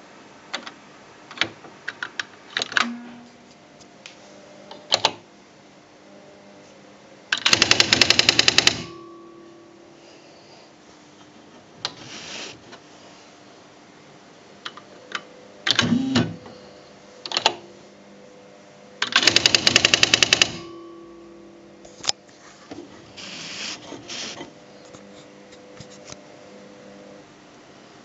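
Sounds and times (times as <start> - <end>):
typewriter mechanical whirs: 7.3 - 9.1, 15.1 - 16.4, 17.2 - 17.6, 19.0 - 20.8
typewriter clicks and print strikes: 7.4 - 9.2, 19.0 - 21.0.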